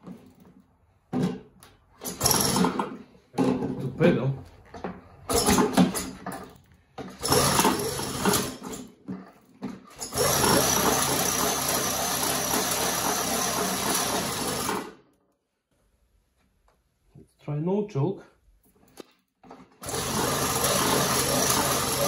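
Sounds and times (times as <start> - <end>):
bicycle chain and wheel spinning: 7.2 - 8.6, 9.9 - 14.8, 19.8 - 22.0.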